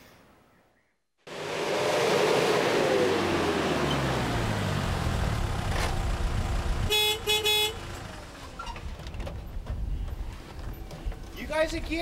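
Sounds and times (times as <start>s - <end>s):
car engine running low: 1.3s - 11.2s
car horn beeps: 6.9s - 7.8s.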